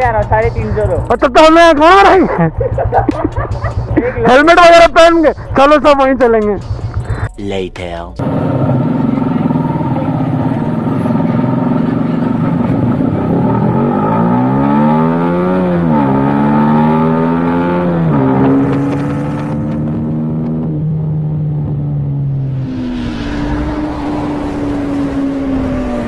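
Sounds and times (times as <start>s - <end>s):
motorcycle engine shifting gears: 8.2s - 22.3s.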